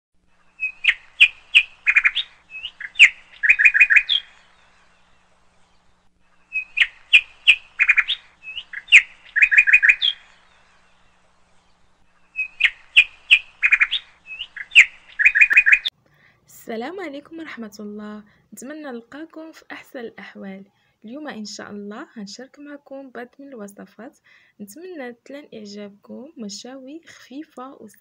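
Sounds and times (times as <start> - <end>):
bird chirping and twittering: 0.4 - 15.9.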